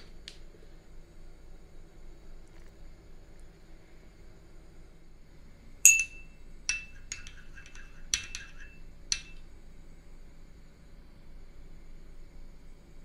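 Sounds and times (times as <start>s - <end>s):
ceramic spoon clinking on bowl: 5.9s - 9.4s.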